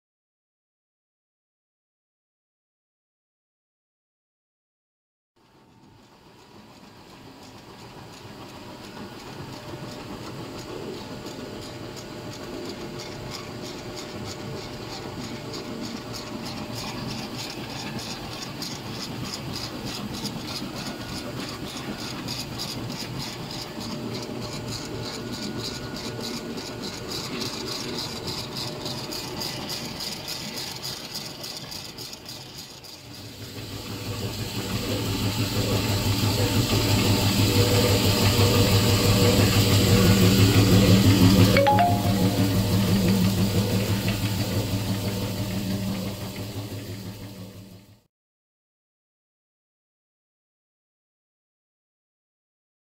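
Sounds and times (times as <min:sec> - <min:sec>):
slitter-rewinder machine running: 0:05.8 - 0:48.0
fast even mechanical rattle: 0:06.4 - 0:41.6, 0:42.6 - 0:48.0
low steady machine hum: 0:34.6 - 0:47.8.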